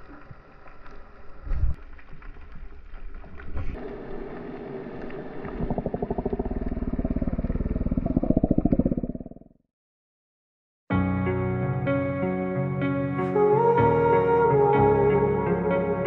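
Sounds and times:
faint underwater crackles and knocks: 0.0s - 9.5s
pulsing gurgle of water and bubbles: 2.6s - 9.6s.

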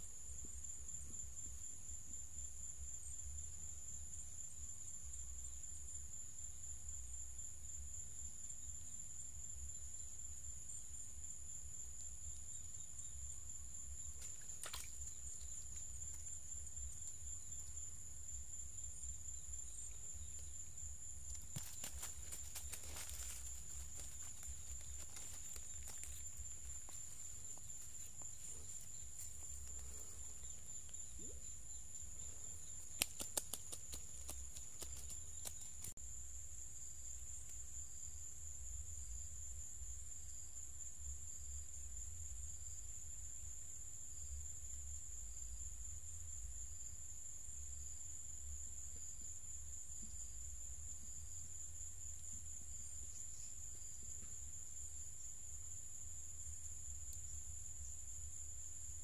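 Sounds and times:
insects droning: 0.0s - 59.0s
sharp clicks: 32.8s - 35.9s.

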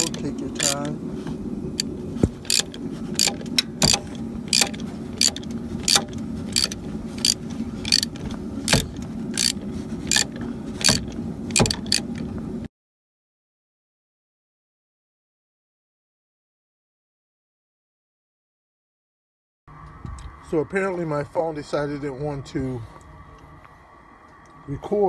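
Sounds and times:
ratchet wrench clicking: 0.0s - 0.9s, 1.8s - 12.3s
steady low hum: 0.0s - 12.7s, 19.7s - 25.0s.

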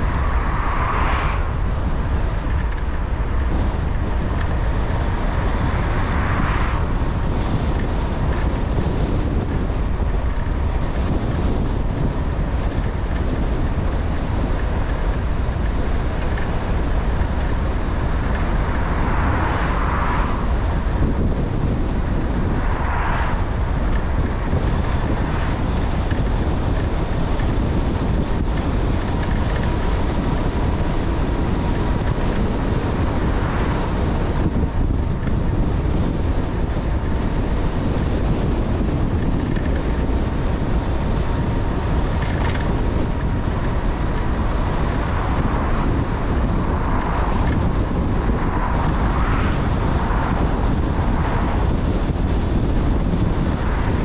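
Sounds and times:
car road noise: 0.0s - 54.0s
wind buffeting microphone: 0.0s - 54.0s.

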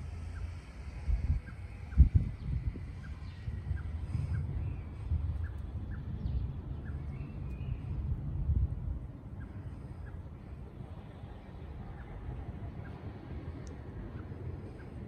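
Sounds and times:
faint bird chirps: 0.0s - 8.2s.

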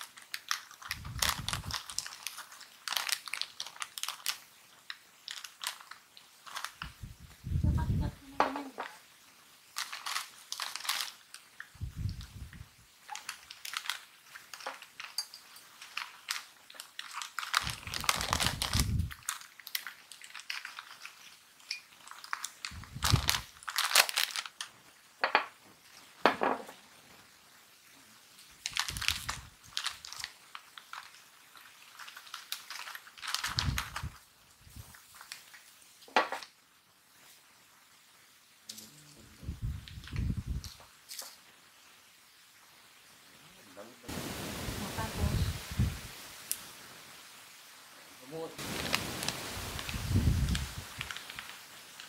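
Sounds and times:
foil chip bag crinkling: 0.0s - 7.1s, 9.6s - 25.1s, 28.3s - 36.5s, 48.6s - 52.0s.

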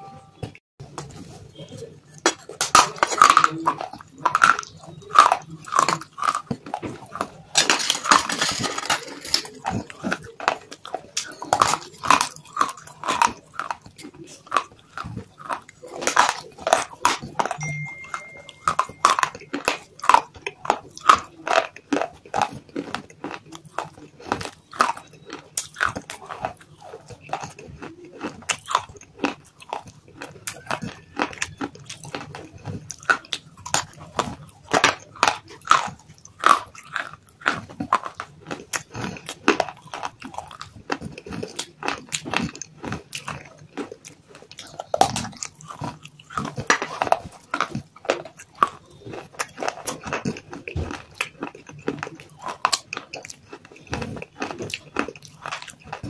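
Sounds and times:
crunchy chewing of dry clay: 0.8s - 56.0s.

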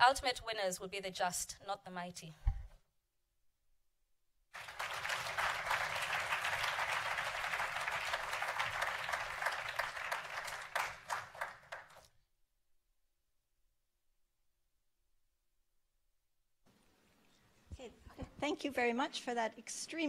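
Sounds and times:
audience applauding: 4.5s - 12.1s.

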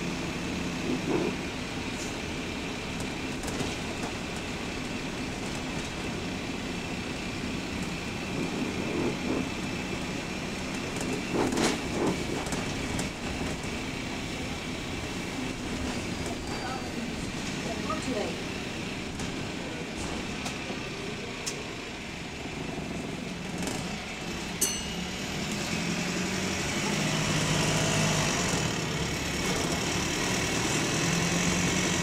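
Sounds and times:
bus engine running: 0.0s - 32.0s
bus body rattling: 0.7s - 29.8s
engine clicking clatter: 7.8s - 14.1s, 22.9s - 24.6s.

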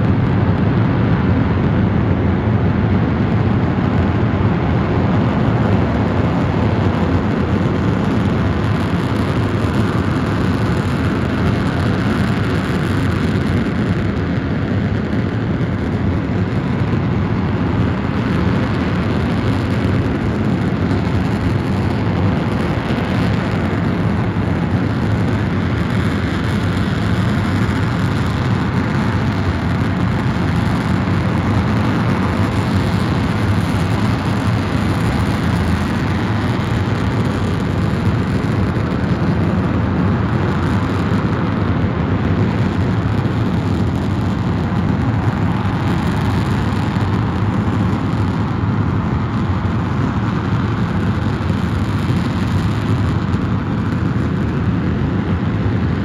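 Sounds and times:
rocket engine exhaust roaring: 0.0s - 56.0s.

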